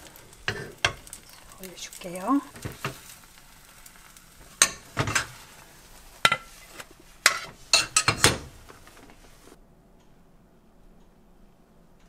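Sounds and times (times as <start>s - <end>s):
spatula scraping frying pan: 0.0s - 1.9s, 2.5s - 9.6s.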